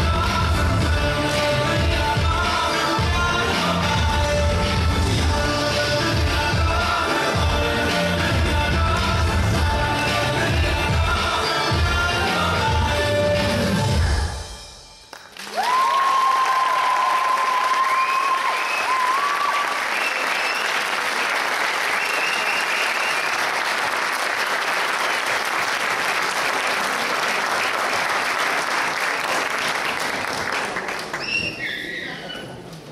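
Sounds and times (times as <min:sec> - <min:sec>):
audience applauding: 0:15.1 - 0:31.9
high cheers and calls: 0:15.4 - 0:20.6.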